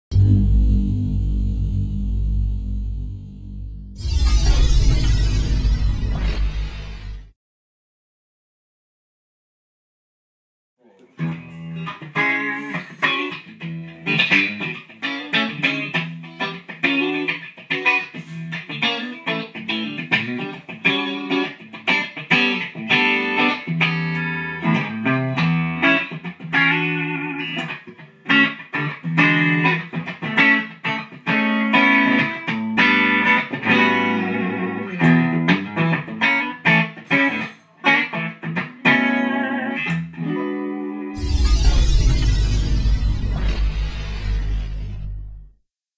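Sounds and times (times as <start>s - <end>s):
electric guitar blues-rock: 11.2s - 41.2s.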